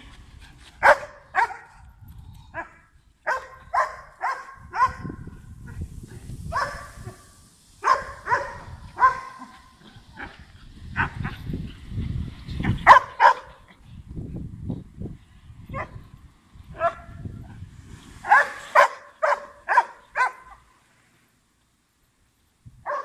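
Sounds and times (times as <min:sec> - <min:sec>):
dog barking: 0:00.8 - 0:01.7, 0:02.6 - 0:05.2, 0:06.5 - 0:07.2, 0:07.8 - 0:10.3, 0:12.8 - 0:13.6, 0:16.8 - 0:17.1, 0:18.2 - 0:20.6.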